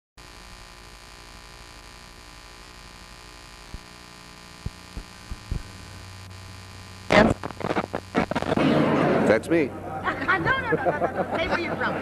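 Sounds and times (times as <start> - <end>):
electrical mains hum: 0.2 - 12.0
soft low thumps: 3.6 - 4.0, 4.6 - 6.2.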